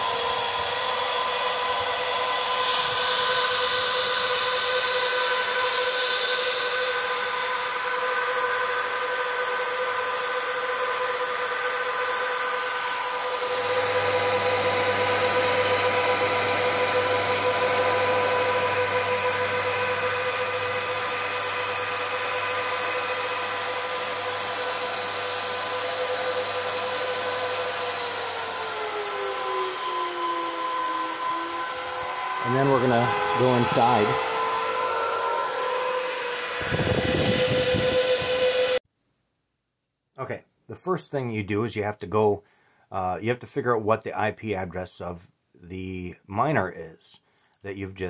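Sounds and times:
cooling fans whining: 0:00.0 - 0:38.8
rushing air: 0:35.5 - 0:38.8.

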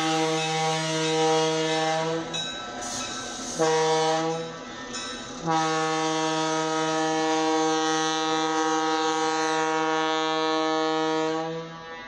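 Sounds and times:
locomotive air horn blast: 0:00.0 - 0:04.8, 0:05.4 - 0:12.0.

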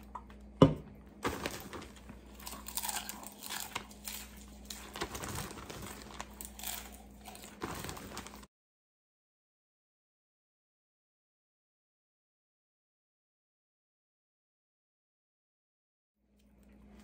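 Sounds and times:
person chewing popcorn: 0:01.2 - 0:08.5
plastic bag crinkling: 0:01.2 - 0:08.5.

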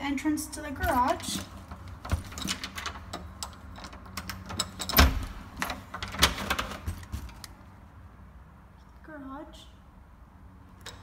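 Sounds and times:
door opening clicks and knocks: 0:00.8 - 0:07.4.

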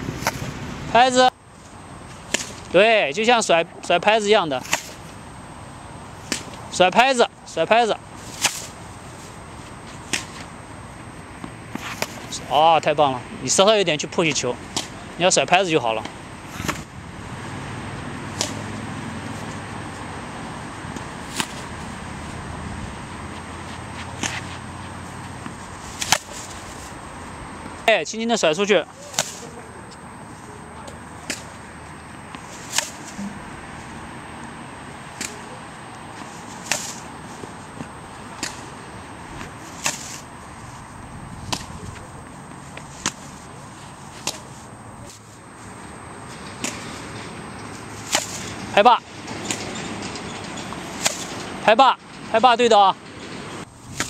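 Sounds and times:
tennis ball racket hits: 0:00.1 - 0:00.5, 0:02.2 - 0:02.8, 0:04.6 - 0:05.2, 0:06.2 - 0:06.6, 0:08.2 - 0:09.0, 0:09.8 - 0:10.5, 0:11.4 - 0:12.5, 0:14.7 - 0:15.0, 0:15.8 - 0:16.9, 0:18.2 - 0:19.6, 0:20.3 - 0:21.9, 0:23.7 - 0:27.0, 0:28.9 - 0:29.8, 0:30.8 - 0:31.6, 0:32.3 - 0:33.6, 0:35.1 - 0:40.3, 0:41.4 - 0:45.3, 0:46.4 - 0:50.0, 0:50.6 - 0:51.6.

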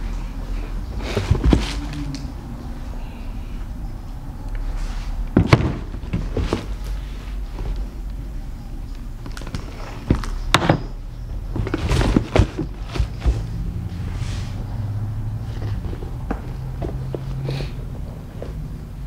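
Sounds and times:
cardboard rustle: 0:01.0 - 0:02.0, 0:05.3 - 0:07.8, 0:11.5 - 0:13.6.

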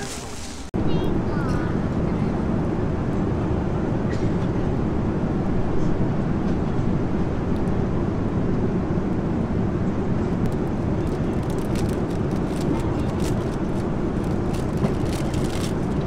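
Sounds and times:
airliner cabin noise: 0:00.0 - 0:16.0
plastic wrapping crinkling: 0:11.1 - 0:16.0.

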